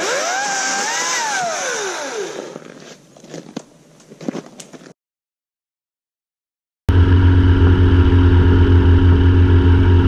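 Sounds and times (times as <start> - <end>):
chainsaw motor whine: 0.0 - 3.0, 6.9 - 10.0.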